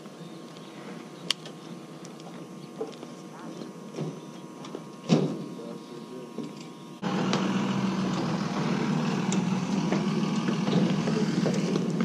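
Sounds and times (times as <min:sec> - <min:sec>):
engine idling: 0:07.0 - 0:12.0.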